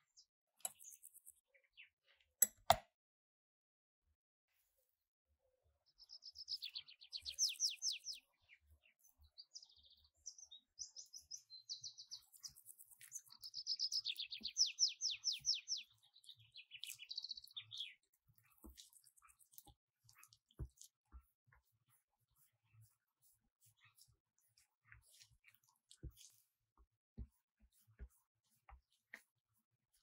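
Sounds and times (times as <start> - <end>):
songbird singing: 5.9 - 18.7
bird chirps and buzzy trills: 5.9 - 19.0.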